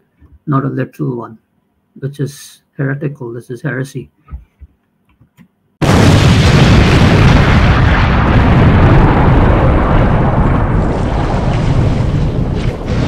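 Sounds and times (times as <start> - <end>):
cinematic rumbling boom: 5.8 - 13.0.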